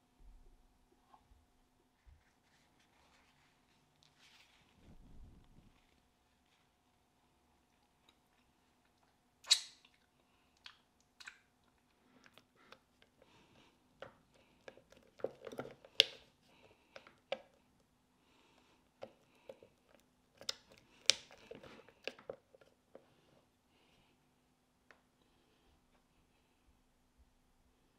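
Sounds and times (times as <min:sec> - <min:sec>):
soft wet scraping: 0:02.0 - 0:07.0.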